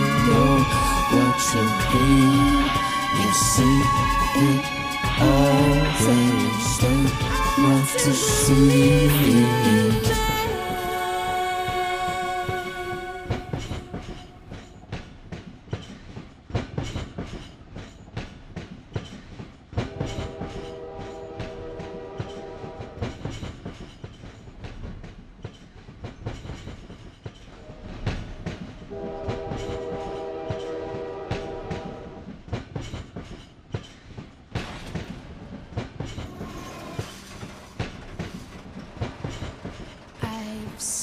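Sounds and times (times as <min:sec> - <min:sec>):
train horn warning blasts: 0:00.0 - 0:14.8, 0:19.8 - 0:23.2, 0:28.9 - 0:32.3
train wheels clattering over joints: 0:00.0 - 0:41.0.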